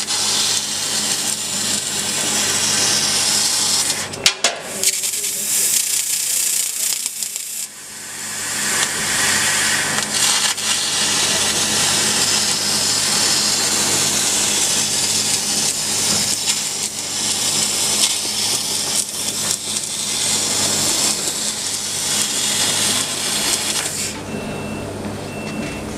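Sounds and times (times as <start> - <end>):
laser cutting jet hissing: 0.0 - 24.2
low machine hum: 18.9 - 25.9.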